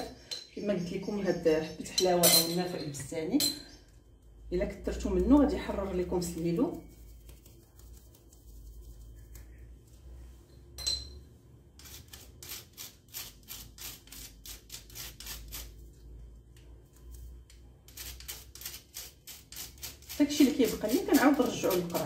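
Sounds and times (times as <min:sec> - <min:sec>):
sharp clink: 0:10.8 - 0:11.2
spoon scraping spice through sieve: 0:11.8 - 0:15.8, 0:17.1 - 0:22.0.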